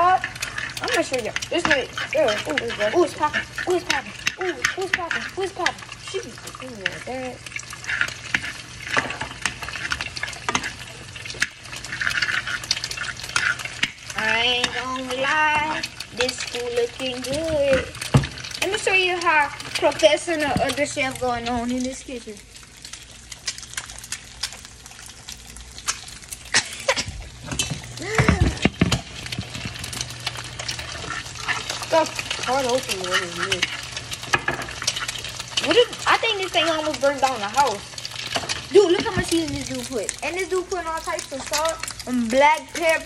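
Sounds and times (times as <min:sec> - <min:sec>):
metal spoon scraping a pan: 0:00.0 - 0:20.4, 0:27.5 - 0:39.2
food sizzling in oil: 0:00.0 - 0:43.0.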